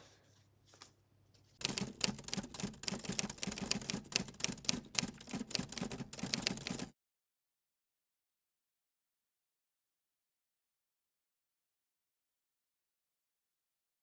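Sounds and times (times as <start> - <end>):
typewriter key clicks: 1.6 - 6.9.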